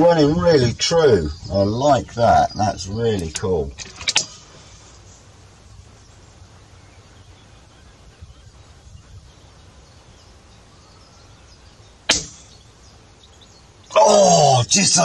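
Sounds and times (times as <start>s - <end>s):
faint outdoor background noise: 0.0s - 15.0s
air rifle shot: 12.1s - 12.5s.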